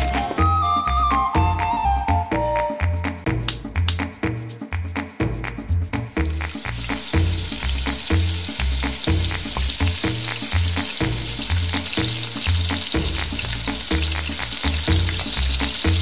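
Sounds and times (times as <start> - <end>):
background music with bass line: 0.0 - 16.0
frying sizzle: 6.2 - 16.0.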